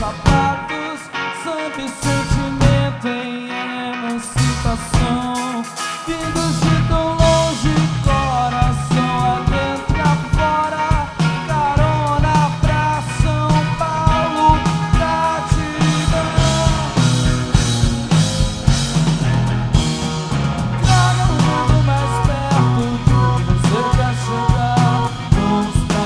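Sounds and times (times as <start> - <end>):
drum kit: 0.0 - 3.1, 4.0 - 26.0
bass: 0.0 - 3.2, 4.0 - 26.0
electric guitars: 0.0 - 26.0
melodic line: 6.1 - 26.0.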